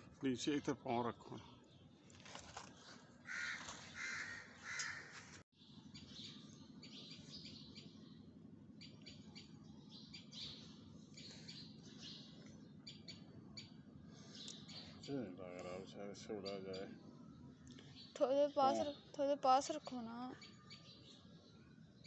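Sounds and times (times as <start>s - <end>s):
crows cawing: 3.2s - 5.4s
steady low hum: 5.6s - 22.0s.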